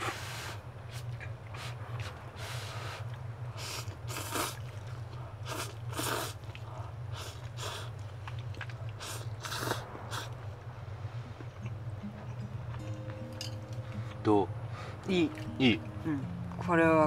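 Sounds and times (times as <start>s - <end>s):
people slurping noodles: 0.0s - 10.4s
steady low hum: 0.0s - 17.0s.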